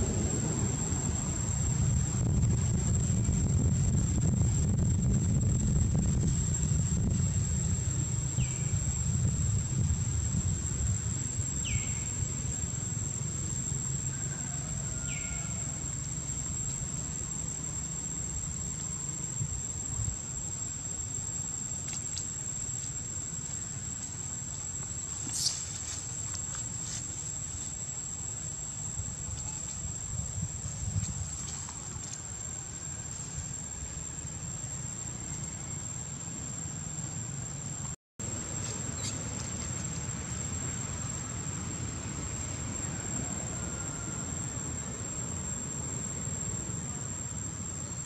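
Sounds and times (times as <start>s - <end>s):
low rumble: 0.0s - 14.0s
high-pitched insect drone: 0.0s - 37.6s, 38.2s - 48.0s.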